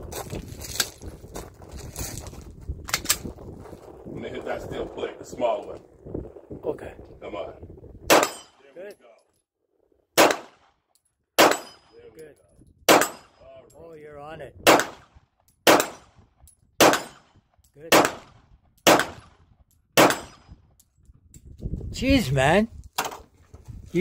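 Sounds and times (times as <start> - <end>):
pistol shots: 8.1 - 8.6, 10.2 - 10.8, 11.4 - 11.9, 12.9 - 13.4, 14.6 - 16.2, 16.8 - 19.4, 20.0 - 20.5.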